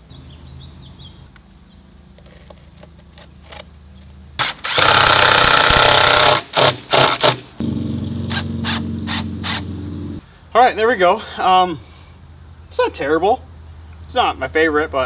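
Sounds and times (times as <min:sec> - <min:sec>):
cordless drill driving screws: 0:04.4 - 0:07.4.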